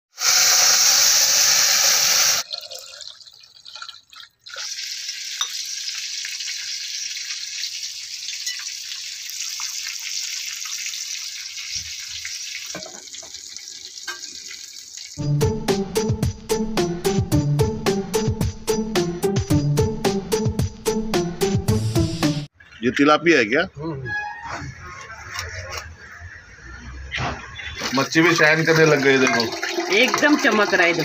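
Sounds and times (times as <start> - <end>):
hot liquid splashing into pot: 0.2 - 15.2, 27.8 - 31.0.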